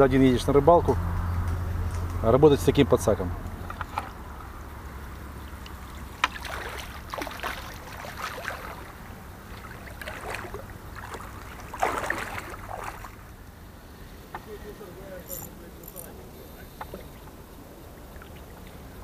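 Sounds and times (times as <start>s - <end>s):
water splashing and sloshing: 3.5s - 14.2s, 16.8s - 19.0s
water running off net mesh: 6.0s - 13.2s.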